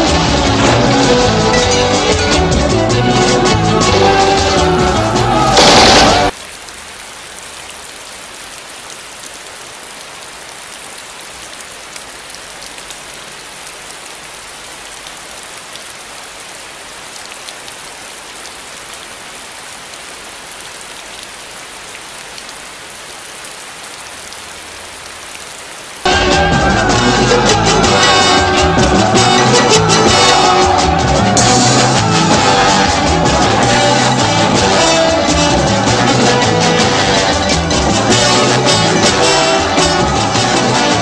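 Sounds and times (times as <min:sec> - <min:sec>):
loud noisy burst: 0:03.3 - 0:06.4.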